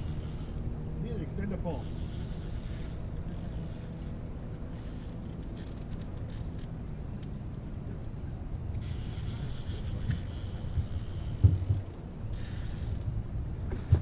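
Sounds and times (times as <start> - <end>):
outboard motor running: 0.0 - 7.1.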